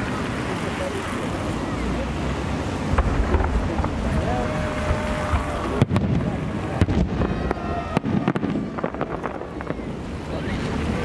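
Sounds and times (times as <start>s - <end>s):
firework shells bursting: 2.9s - 9.8s.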